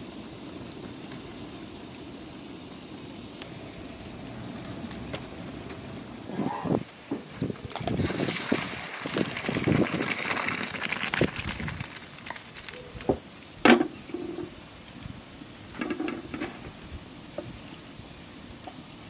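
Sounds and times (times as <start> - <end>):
water pouring into colander: 7.8 - 12.7.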